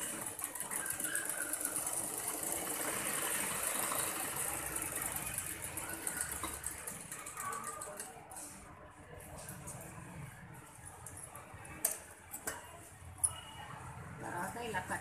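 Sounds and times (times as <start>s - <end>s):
sewing machine running: 0.0s - 8.1s.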